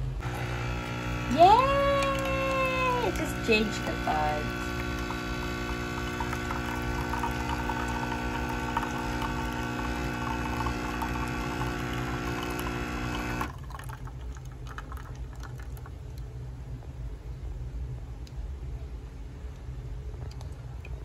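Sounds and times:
coffee machine pump humming: 0:00.0 - 0:16.4
coffee streaming into a mug: 0:00.2 - 0:16.0
drips falling into a mug: 0:06.2 - 0:16.0.

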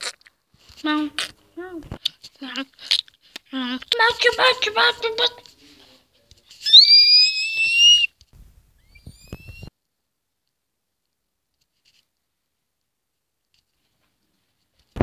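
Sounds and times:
high-pitched whistling squeal: 0:06.6 - 0:08.1, 0:08.8 - 0:09.7
short faint squeaks: 0:08.8 - 0:09.7.

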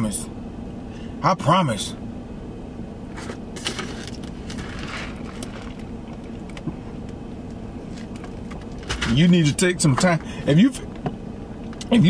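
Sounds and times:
car cabin hum: 0:00.0 - 0:12.0
paper cup rustling: 0:03.1 - 0:06.2.

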